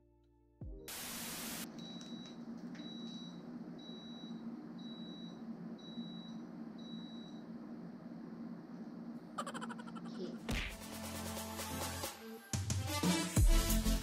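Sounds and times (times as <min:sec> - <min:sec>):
static hiss burst: 0:00.9 - 0:01.7.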